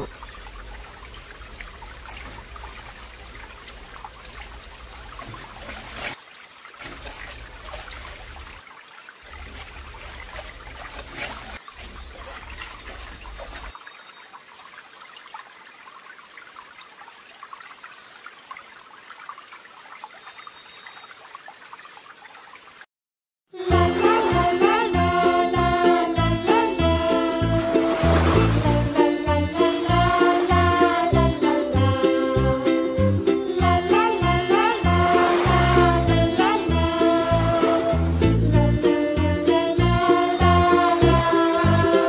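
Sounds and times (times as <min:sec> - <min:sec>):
water sloshing in plastic bucket: 0:09.3 - 0:13.7.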